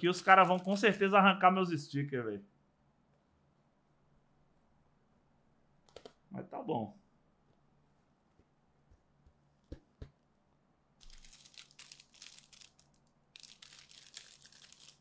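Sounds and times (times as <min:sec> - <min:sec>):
sticker paper crinkling: 0:00.0 - 0:01.0, 0:11.0 - 0:15.0
soft taps: 0:08.4 - 0:10.2.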